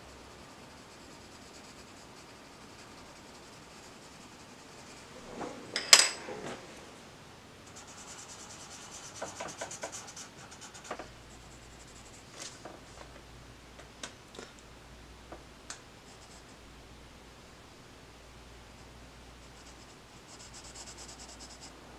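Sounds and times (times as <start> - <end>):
pencil scratching on paper: 0.4 - 5.2, 7.7 - 12.6, 16.0 - 16.6, 19.4 - 21.8.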